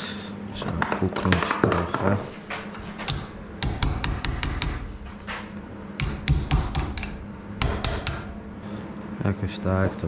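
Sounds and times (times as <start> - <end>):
sharp taps on metal part: 6.0 - 8.3.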